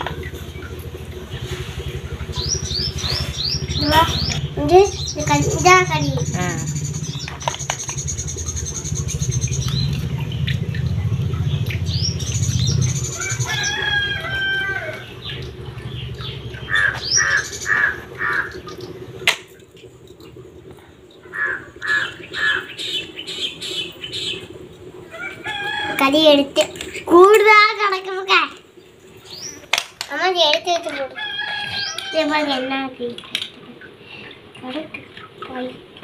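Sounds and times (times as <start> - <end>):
low rumble: 0.0 - 19.2
repeated bird calls: 0.0 - 28.0
birds chirping: 0.0 - 32.8.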